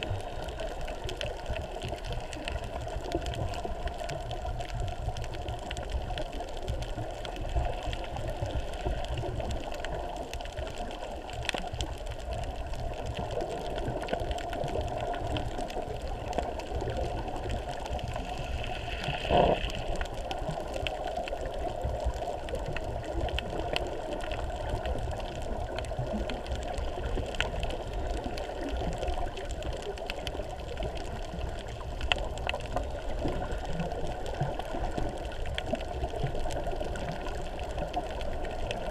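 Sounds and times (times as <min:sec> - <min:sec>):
faint clicks: 0:00.0 - 0:38.8
muffled underwater rumble and hiss: 0:00.0 - 0:38.9
water whoosh: 0:15.6 - 0:21.5.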